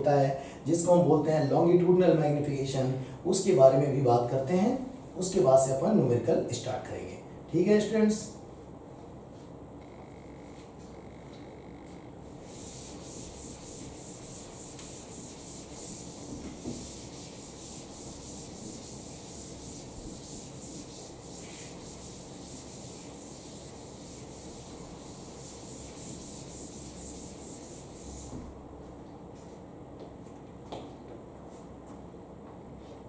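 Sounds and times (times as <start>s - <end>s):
duster scrubbing chalkboard: 11.9s - 28.6s.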